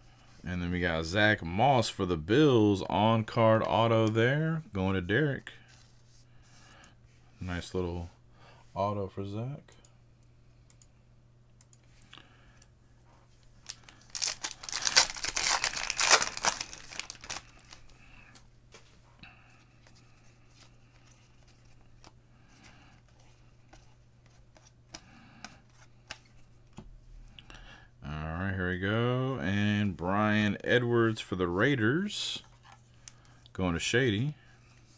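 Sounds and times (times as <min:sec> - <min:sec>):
wrapper tearing and crinkling: 0:13.6 - 0:17.9.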